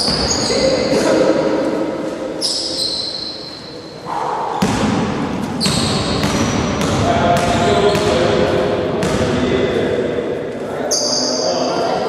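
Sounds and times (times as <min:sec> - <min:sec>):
shoe squeaks: 0:00.0 - 0:01.0, 0:02.4 - 0:04.7, 0:05.6 - 0:06.6, 0:07.5 - 0:08.2, 0:10.8 - 0:11.8
basketball bouncing on wooden floor: 0:04.6 - 0:08.2, 0:09.0 - 0:09.4
players' voices: 0:05.6 - 0:12.0.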